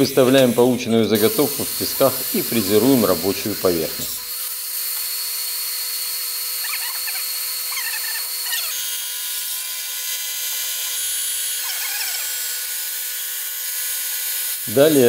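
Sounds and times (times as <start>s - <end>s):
metal cutting hiss: 0.0s - 4.5s, 14.7s - 15.0s
milling machine whine: 0.0s - 4.5s.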